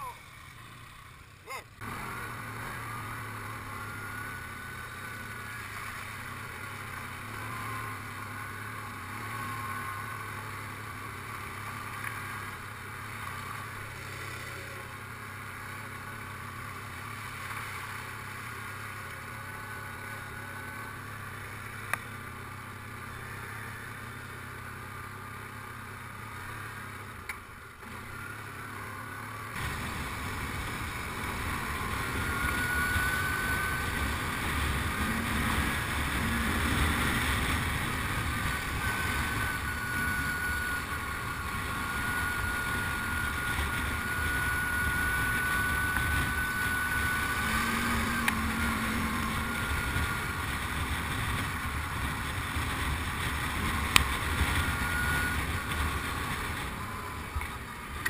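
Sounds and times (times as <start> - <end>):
quad bike engine running: 0.0 - 58.0
thin steady whine: 0.0 - 58.0.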